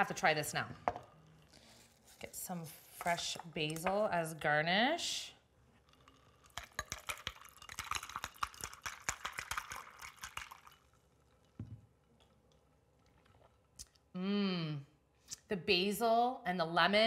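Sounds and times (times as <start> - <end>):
liquid pouring into a glass: 5.8 - 13.8.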